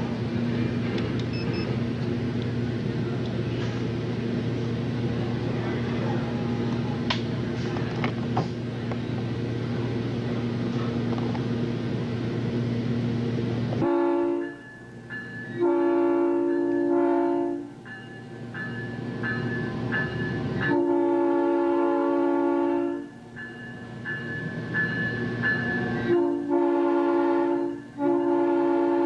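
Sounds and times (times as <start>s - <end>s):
electric train rumble and hum: 0.0s - 29.0s
train horn blasts: 13.8s - 14.6s, 15.5s - 17.8s, 20.6s - 23.2s, 25.9s - 29.0s.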